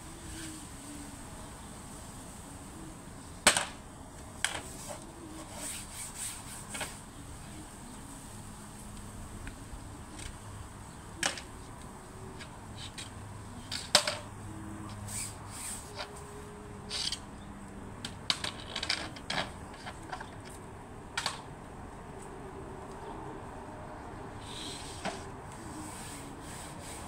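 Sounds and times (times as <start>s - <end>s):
hands scrubbing window screens: 4.6s - 10.4s, 24.4s - 27.0s.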